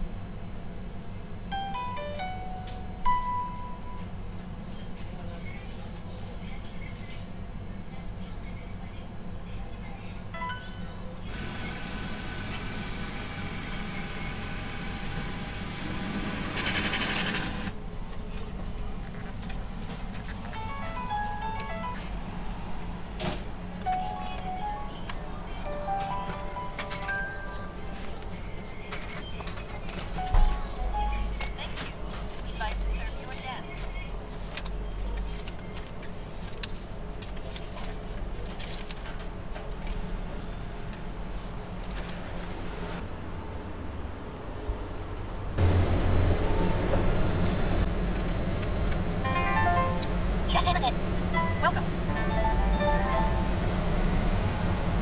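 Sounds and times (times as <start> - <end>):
machine mechanism running: 14.4 - 17.8
electronic chime melody: 49.2 - 50.2, 51.3 - 53.8.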